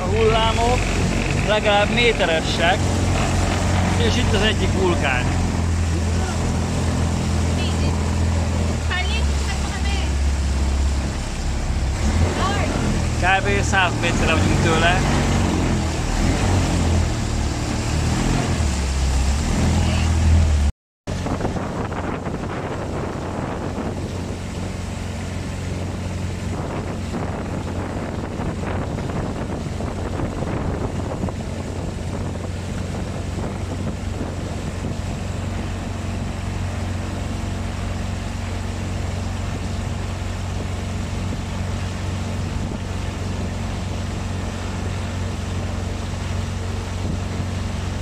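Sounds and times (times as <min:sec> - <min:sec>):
boat engine droning: 0:00.0 - 0:48.0
gusty wind on microphone: 0:00.0 - 0:48.0.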